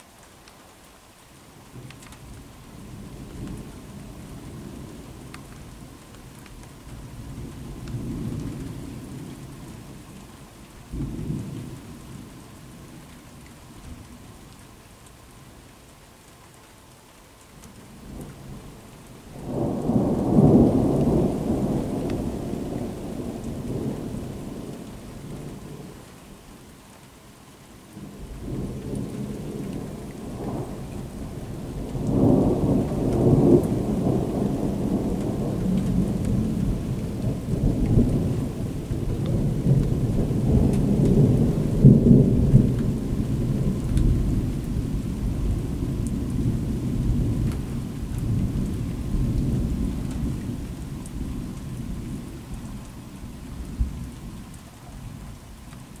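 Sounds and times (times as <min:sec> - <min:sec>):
thunder rumbling: 0:18.0 - 0:26.0, 0:28.0 - 0:52.5.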